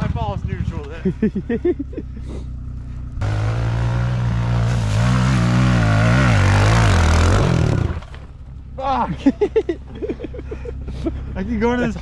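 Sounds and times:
dirt bike engine revving: 0.0s - 8.3s.

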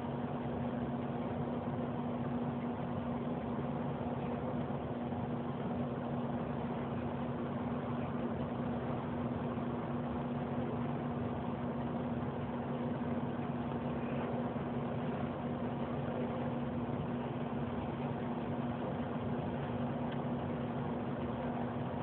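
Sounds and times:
steady mechanical hum: 0.0s - 22.0s.

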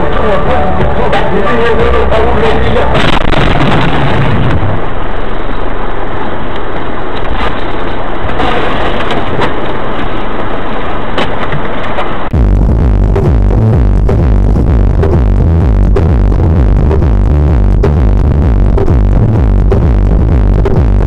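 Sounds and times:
car collision crunching: 7.2s - 12.2s.

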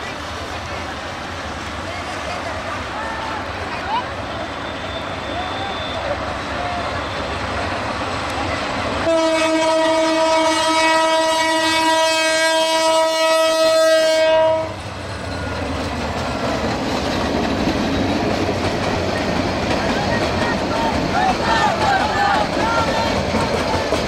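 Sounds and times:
train wheels on rails: 0.0s - 24.0s
locomotive horn blast: 9.0s - 14.8s.

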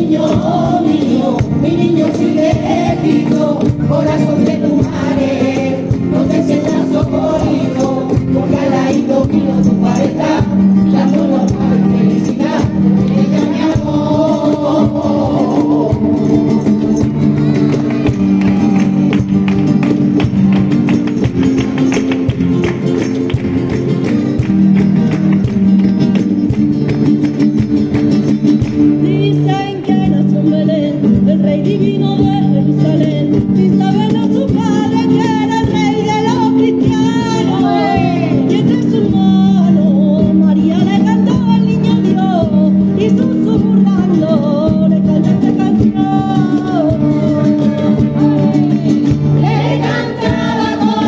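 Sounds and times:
women singing: 0.0s - 17.4s, 29.0s - 51.0s
rhythmic clapping: 0.0s - 29.0s
guitars strumming chords: 0.0s - 51.0s.

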